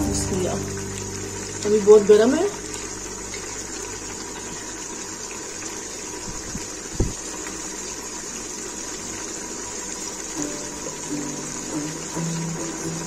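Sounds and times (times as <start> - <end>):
music: 0.0 - 2.6, 10.4 - 13.0.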